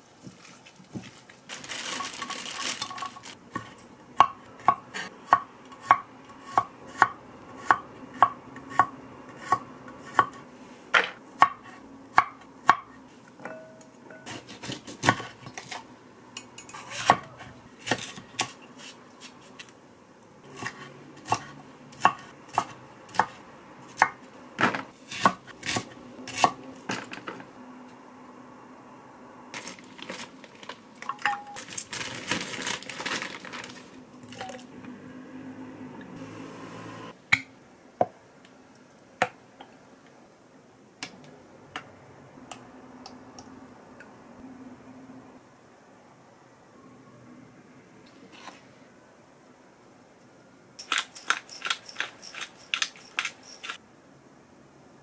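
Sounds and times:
rustling: 0:00.0 - 0:03.8, 0:29.6 - 0:34.7.

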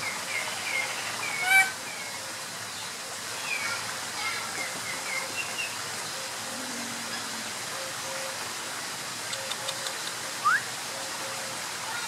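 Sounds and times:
water rushing: 0:00.0 - 0:12.0
faint high ticks: 0:09.3 - 0:10.2.

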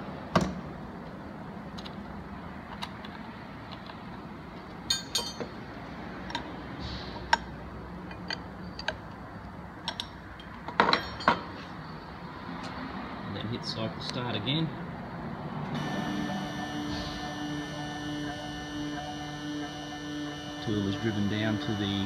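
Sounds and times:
steady low hum: 0:15.7 - 0:22.0.

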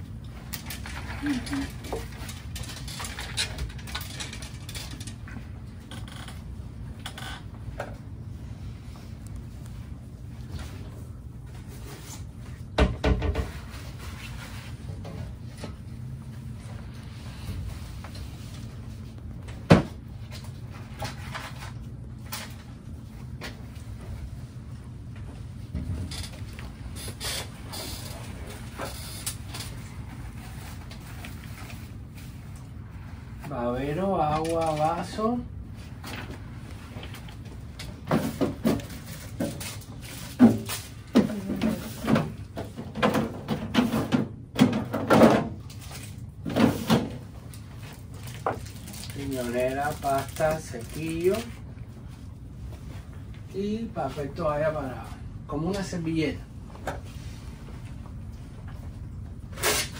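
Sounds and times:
low steady hum: 0:00.0 - 0:59.9
cloth and paper rustling: 0:00.8 - 0:03.3, 0:47.3 - 0:55.1.

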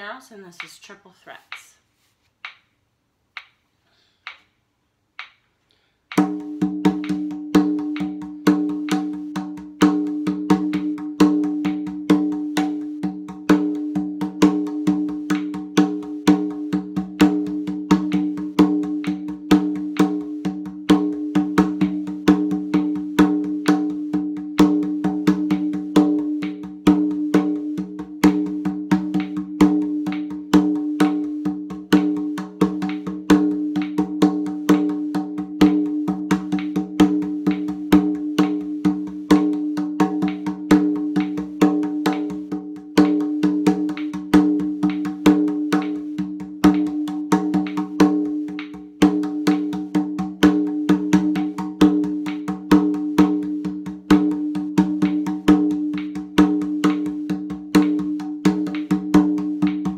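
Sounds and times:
hand drum played with hands: 0:06.1 - 0:59.9.

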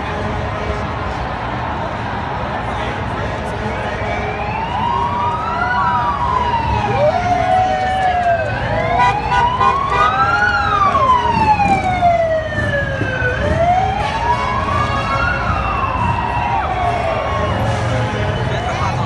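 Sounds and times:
large crowd noise: 0:00.0 - 0:19.0
emergency siren wailing: 0:03.4 - 0:19.0
second siren sweeping: 0:03.8 - 0:19.0.

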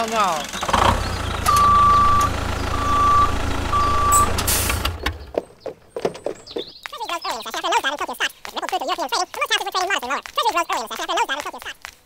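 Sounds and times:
low engine rumble: 0:00.0 - 0:05.6
reversing alarm beeps: 0:01.5 - 0:04.4.

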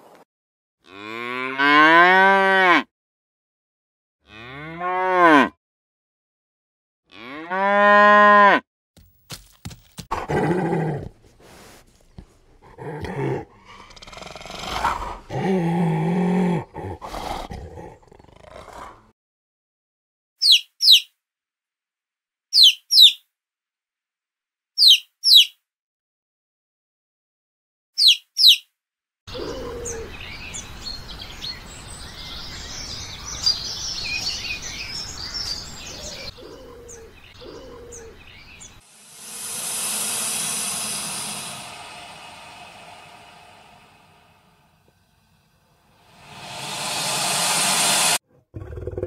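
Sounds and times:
bird chirping: 0:29.5 - 0:41.9.

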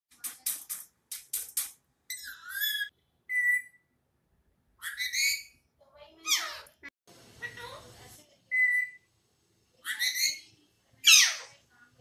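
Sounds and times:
parakeet squawking: 0:02.1 - 0:03.8, 0:04.8 - 0:05.6, 0:06.2 - 0:06.8, 0:09.8 - 0:11.5.

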